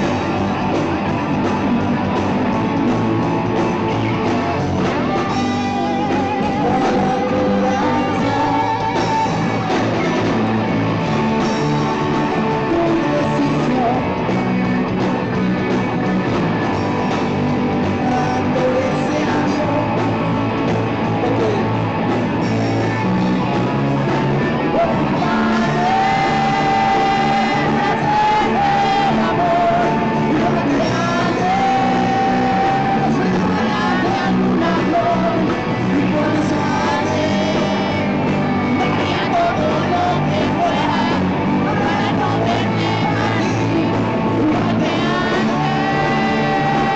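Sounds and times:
electric guitars: 0.0s - 46.9s
rock band playing: 0.0s - 46.9s
man singing into microphone: 5.1s - 10.2s, 12.3s - 14.2s, 17.9s - 20.2s, 24.7s - 46.9s.

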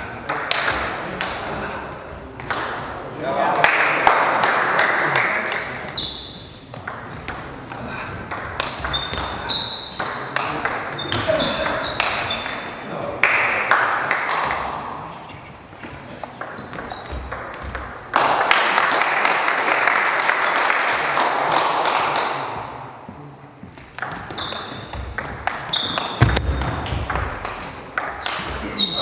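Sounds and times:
clicking noise in hall: 0.0s - 1.4s, 13.2s - 23.2s
table tennis ball pinging: 0.1s - 1.4s, 2.4s - 3.6s, 5.5s - 12.8s, 16.2s - 18.7s, 23.8s - 28.8s.

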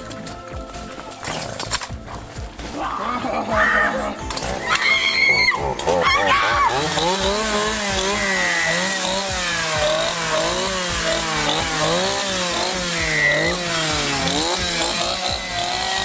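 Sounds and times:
chainsaw engine revving: 4.0s - 16.0s.

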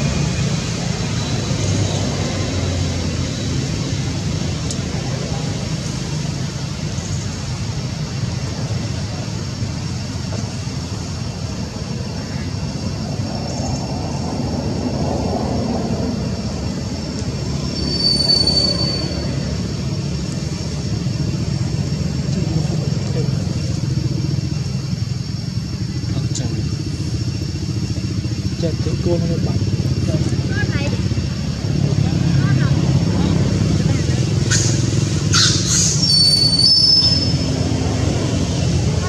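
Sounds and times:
brief high squeal: 17.6s - 19.4s, 35.4s - 37.5s.

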